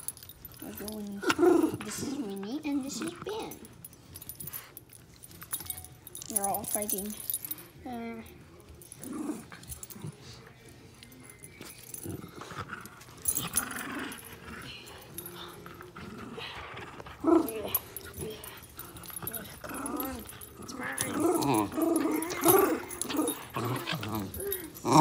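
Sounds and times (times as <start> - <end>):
dogs growling: 0.5 - 3.7, 8.8 - 10.5, 11.9 - 25.0
dogs whining: 11.3 - 25.0.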